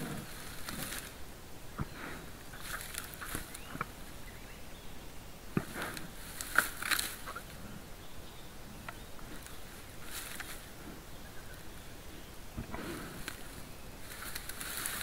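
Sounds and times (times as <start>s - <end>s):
rustling in dry grass: 0.0s - 15.0s
twigs cracking and snapping: 0.2s - 1.2s, 2.6s - 4.0s, 5.6s - 7.6s, 8.8s - 10.7s, 13.2s - 15.0s.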